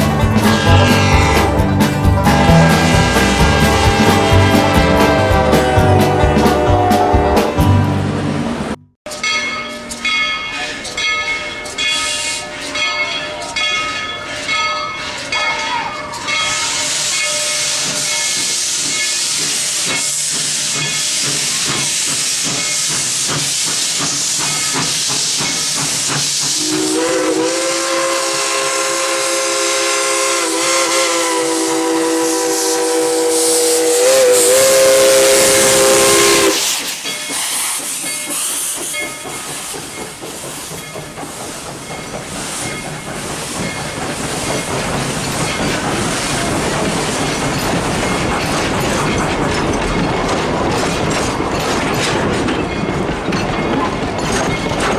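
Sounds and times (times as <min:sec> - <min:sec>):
locomotive bell ringing: 0:09.1 - 0:20.2, 0:35.0 - 0:54.9
chime steam whistle blast: 0:15.5 - 0:21.0, 0:26.5 - 0:39.2
steam hissing: 0:16.1 - 0:49.4.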